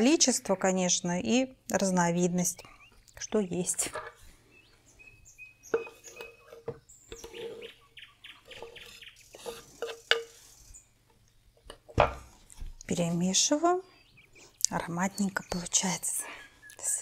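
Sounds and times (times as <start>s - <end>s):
knife scraping cutting board: 5.8s - 7.8s, 8.5s - 10.6s.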